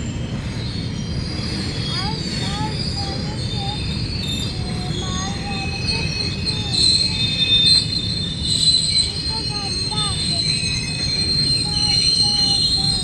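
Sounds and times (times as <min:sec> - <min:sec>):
freight wagon wheels rumbling: 0:00.0 - 0:13.0
high-pitched wheel squeal: 0:00.0 - 0:13.0.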